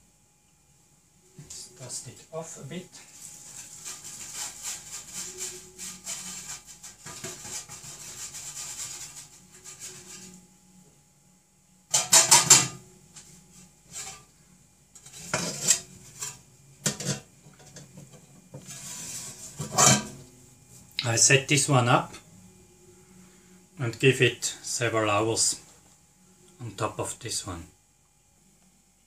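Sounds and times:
metal scraping rub: 3.0 - 10.5, 13.9 - 14.3, 15.0 - 16.4, 18.6 - 20.2
metal lid clanking: 11.9 - 12.8, 19.6 - 20.2.

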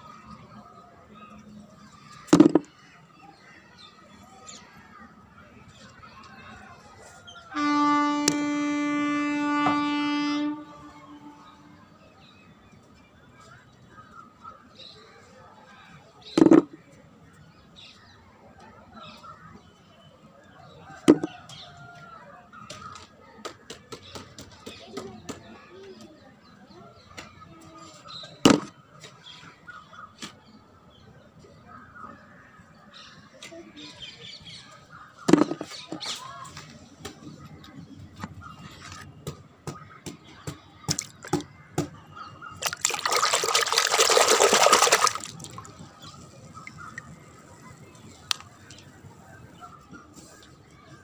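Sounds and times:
rushing splashy noise: 42.6 - 45.8.

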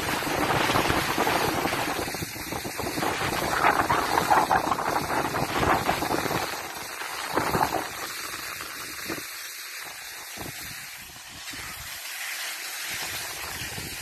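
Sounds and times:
wind buffeting microphone: 0.0 - 9.2, 13.1 - 14.0
skis scraping over packed snow: 0.0 - 14.0.

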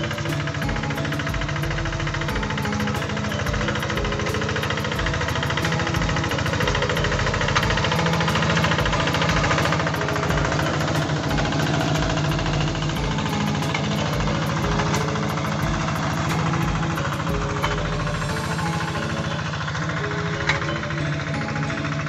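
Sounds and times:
single-cylinder diesel engine knocking: 0.0 - 22.0.

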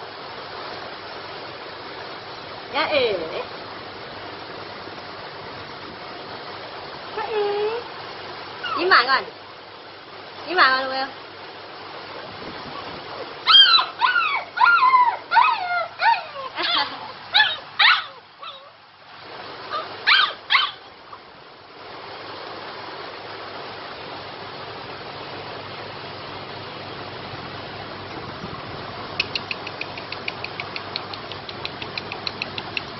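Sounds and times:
puppy whimpering: 8.6 - 9.1, 12.7 - 18.8, 19.7 - 20.8.

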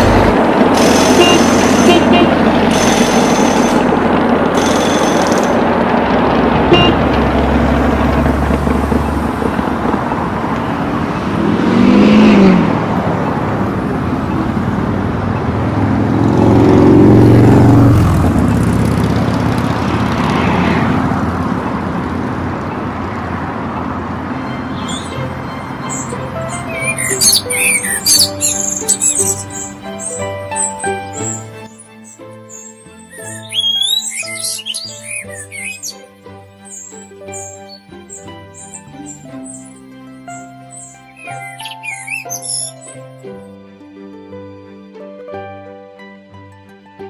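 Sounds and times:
car passing close by: 0.0 - 32.2
traffic noise: 0.0 - 44.9.

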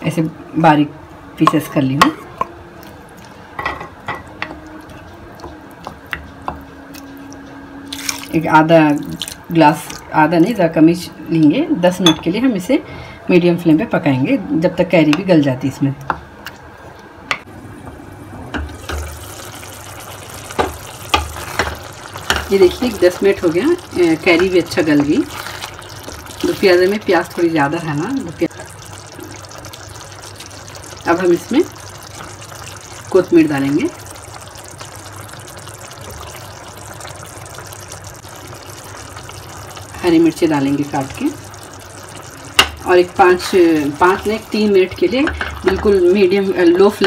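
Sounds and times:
curry bubbling in a pan: 2.1 - 10.6, 18.2 - 47.0.

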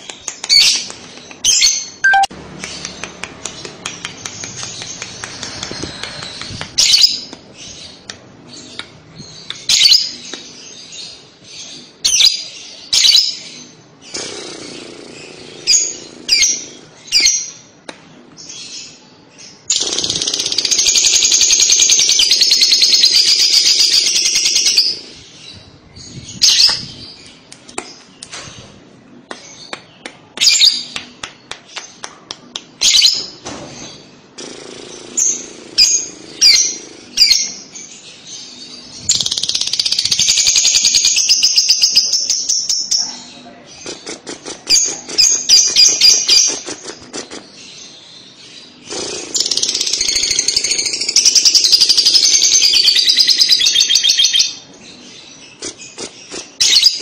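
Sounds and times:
lovebird chirps: 1.4 - 8.0.

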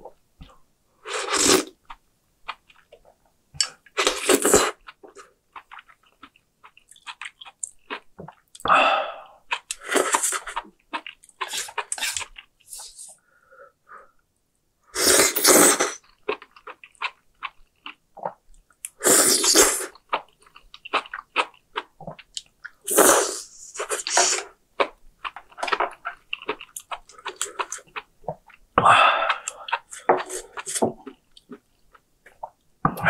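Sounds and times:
loud slurping of noodles: 15.0 - 16.0, 19.0 - 19.9.

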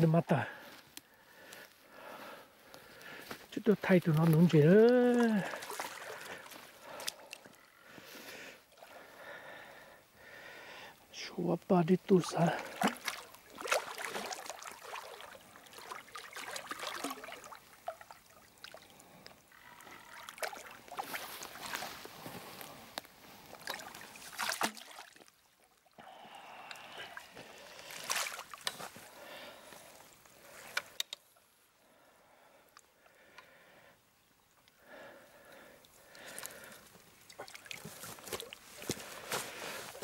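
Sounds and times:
water sloshing: 4.1 - 7.5, 12.2 - 22.1, 23.5 - 26.0, 27.1 - 29.1, 36.1 - 40.0.

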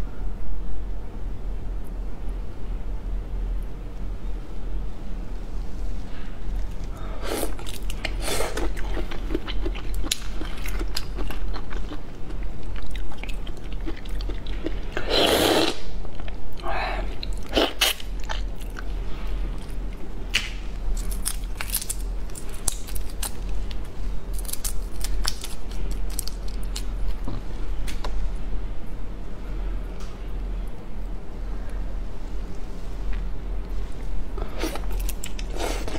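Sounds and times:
wet chewing and biting: 7.5 - 15.3.

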